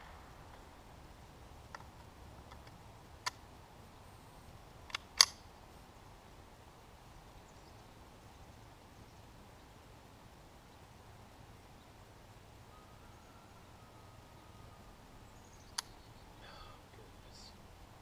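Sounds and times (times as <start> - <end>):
man speaking: 16.4 - 17.6.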